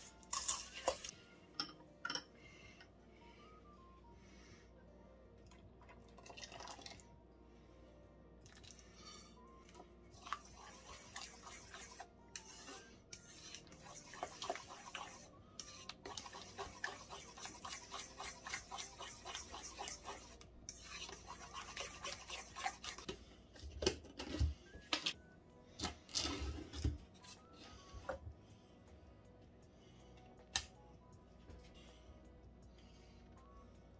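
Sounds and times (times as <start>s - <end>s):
spoon scraping in metal bowl: 0.0s - 1.1s, 10.2s - 23.1s.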